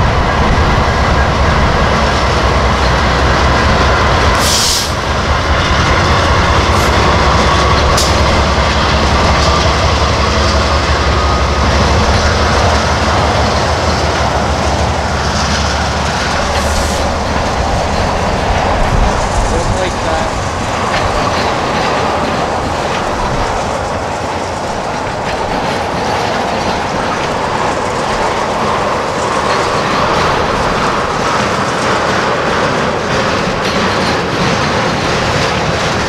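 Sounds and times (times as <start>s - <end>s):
freight train wheels rumbling: 0.0s - 36.0s.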